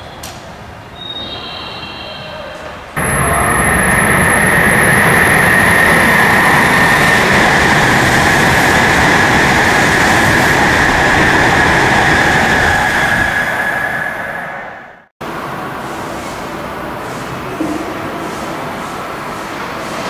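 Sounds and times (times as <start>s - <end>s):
high-speed train passing: 0.4s - 20.0s
high whine: 3.0s - 15.1s.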